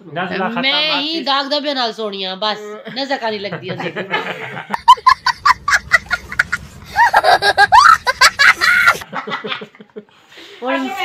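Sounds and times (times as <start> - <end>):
young child laughing: 4.8 - 9.1.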